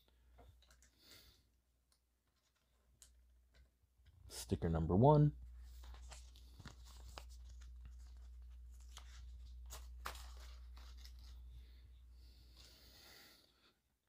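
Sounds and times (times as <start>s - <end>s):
papery rustle: 5.6s - 11.8s.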